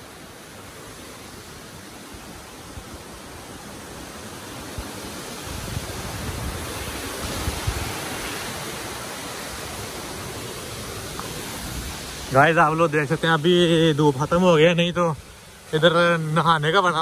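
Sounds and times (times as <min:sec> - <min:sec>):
stream rushing over stones: 0:00.0 - 0:17.0.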